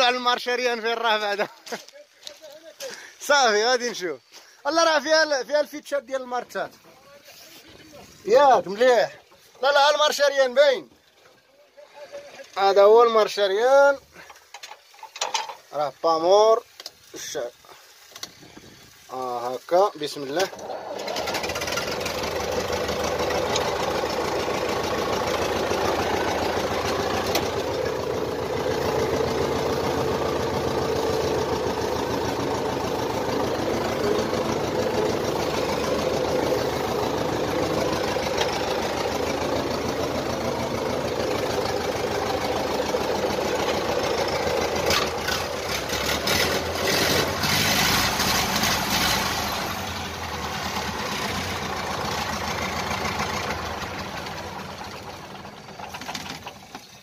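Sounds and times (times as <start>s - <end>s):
tractor engine idling: 0.0s - 57.0s
clicking and rattling: 14.2s - 15.7s.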